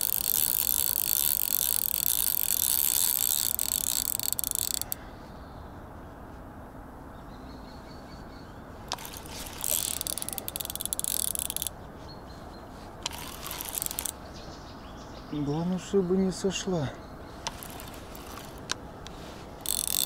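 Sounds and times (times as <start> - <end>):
fishing reel drag clicking: 0.0 - 5.0, 8.9 - 11.7, 13.0 - 14.2, 17.4 - 20.0.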